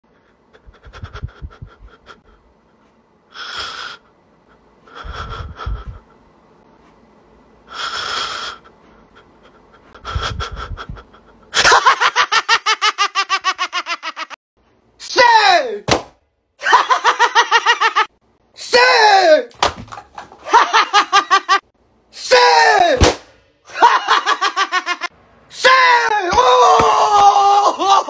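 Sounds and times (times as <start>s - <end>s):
man sobbing and sniffing: 0.4s - 2.7s, 7.7s - 11.6s
man wailing: 15.0s - 15.8s, 18.6s - 19.5s, 22.2s - 23.0s, 23.7s - 28.0s.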